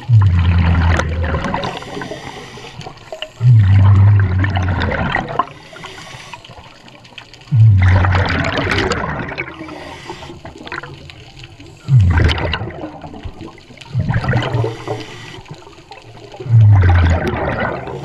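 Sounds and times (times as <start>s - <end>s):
underwater regulator breath bubbles: 0.0s - 6.6s, 7.5s - 11.0s, 11.8s - 18.0s
regulator hiss: 5.6s - 6.7s, 9.6s - 10.5s.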